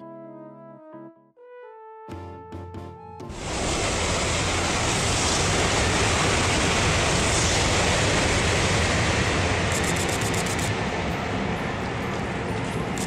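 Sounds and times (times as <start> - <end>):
train passing at speed: 3.3 - 13.0.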